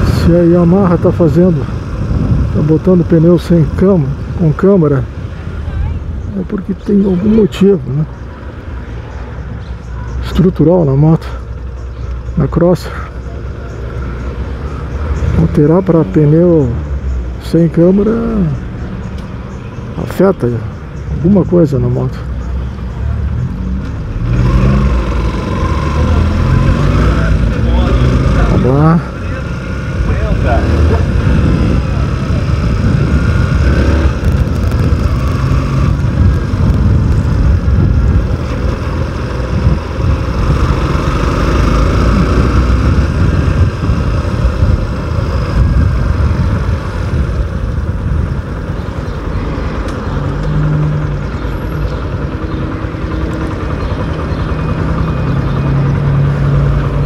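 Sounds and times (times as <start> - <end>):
road noise: 0.0 - 57.0
wind noise: 1.5 - 3.0, 30.0 - 52.2
motorcycle engine running: 22.6 - 57.0.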